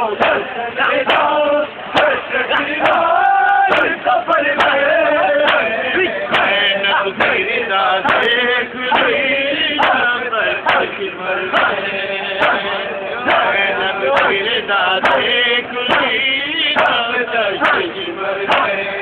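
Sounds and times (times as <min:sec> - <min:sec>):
crowd of men chanting: 0:00.0 - 0:19.0
hands slapping chests: 0:18.5 - 0:18.8.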